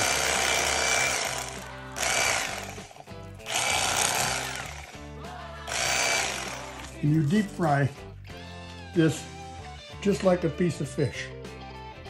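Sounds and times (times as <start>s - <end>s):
electric knife buzzing: 0.0s - 5.1s, 5.7s - 7.0s.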